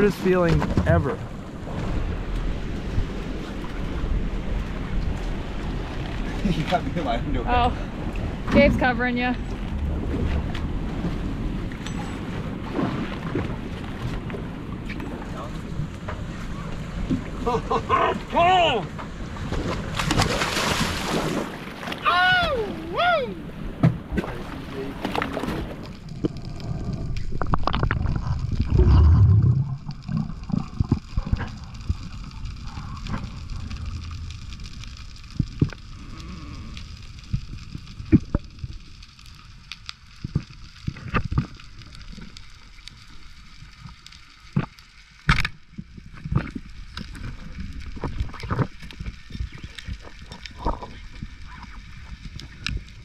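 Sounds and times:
underwater rumble and bubbles: 0.0 - 53.0
muffled underwater hush: 22.1 - 38.5, 47.3 - 53.0
underwater clicks and knocks: 25.0 - 34.4, 37.3 - 38.7, 43.8 - 52.9.

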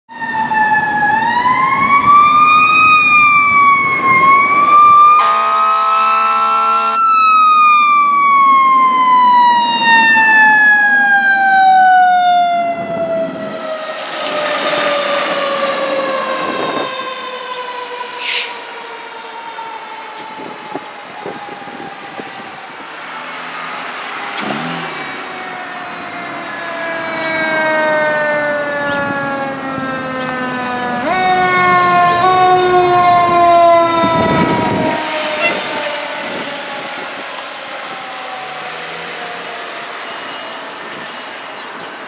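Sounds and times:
fire engine siren wailing: 0.1 - 42.0
horn blast: 5.1 - 7.1, 33.2 - 35.8.

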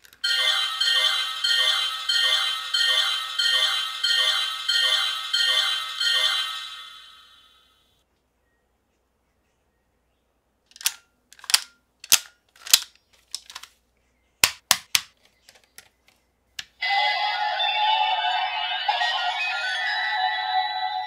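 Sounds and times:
plastic toy panels clicking: 10.7 - 13.8, 14.4 - 16.7.

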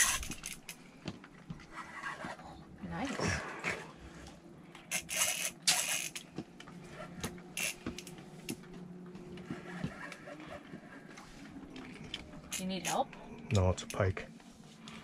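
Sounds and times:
fishing reel whirring: 0.0 - 0.8, 4.8 - 6.3, 7.1 - 8.2.

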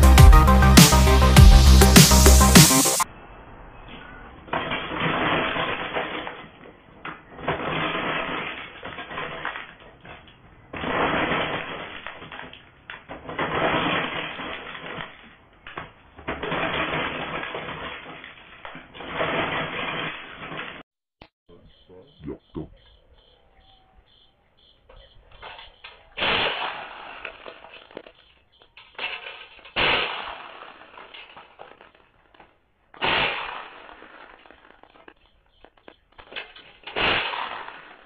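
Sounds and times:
maize sheller rattling and scraping: 4.5 - 20.8, 25.4 - 32.5.

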